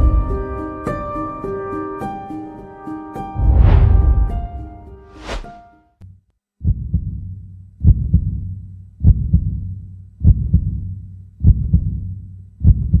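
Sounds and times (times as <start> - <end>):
deep heartbeat thuds: 3.4 - 4.6, 6.6 - 7.2, 7.8 - 8.4, 9.0 - 9.6, 10.2 - 10.8, 11.4 - 12.0, 12.6 - 13.0
low hum: 3.4 - 5.5.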